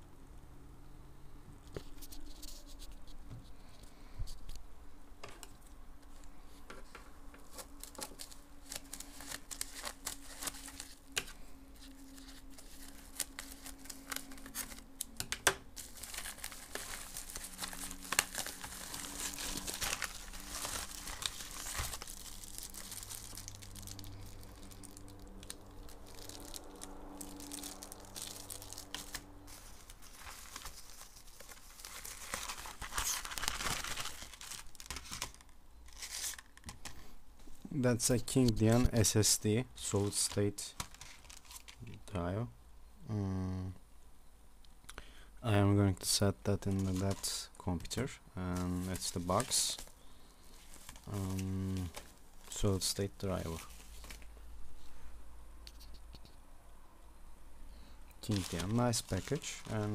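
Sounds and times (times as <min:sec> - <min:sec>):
plastic bag crinkling and tearing: 0:07.4 - 0:37.0, 0:39.8 - 0:41.9, 0:46.6 - 0:54.4, 0:58.2 - 0:59.9.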